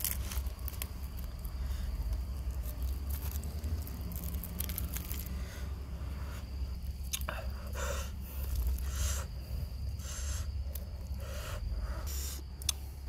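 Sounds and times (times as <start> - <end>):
breathing through the nose: 5.2 - 12.7
man chewing: 6.4 - 12.8.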